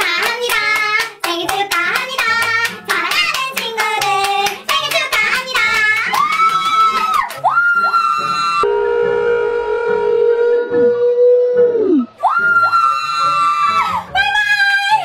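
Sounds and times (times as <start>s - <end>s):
hands clapping rhythmically: 0.0s - 7.6s
backing music: 0.0s - 15.0s.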